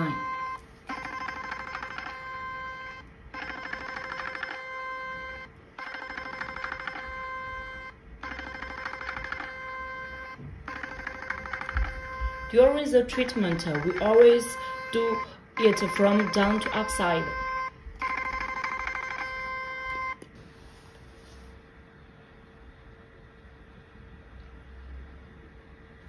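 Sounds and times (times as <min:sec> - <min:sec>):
steady beeping tone: 0:00.0 - 0:20.2
fast electronic ticking: 0:10.7 - 0:19.4.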